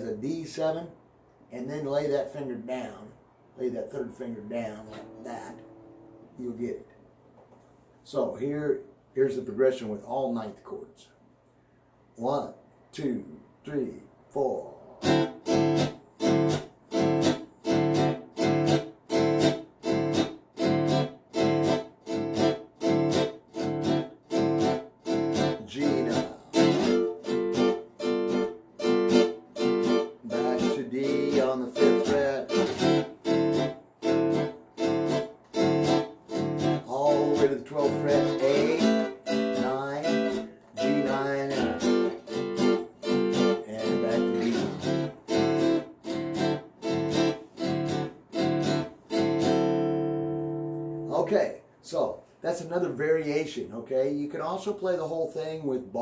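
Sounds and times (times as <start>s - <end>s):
guitar strummed in choppy chords: 4.9s - 6.0s, 15.0s - 51.1s.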